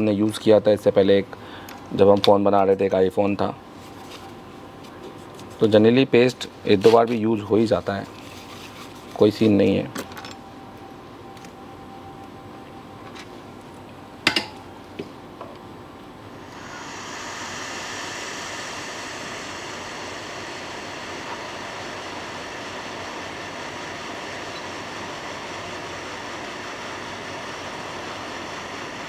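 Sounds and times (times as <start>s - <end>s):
hot air gun hissing: 16.4s - 29.0s.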